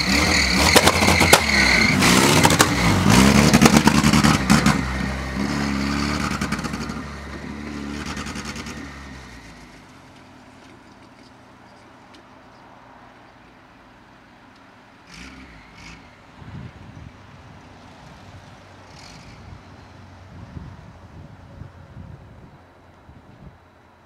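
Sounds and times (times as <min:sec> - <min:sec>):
tractor engine revving: 0:00.0 - 0:10.2, 0:15.0 - 0:21.0
engine crackle: 0:00.0 - 0:12.6.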